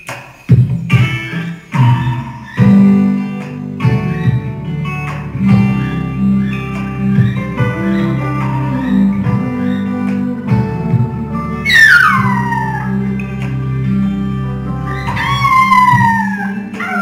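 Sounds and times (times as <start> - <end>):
acoustic guitar strumming: 0.0 - 15.9.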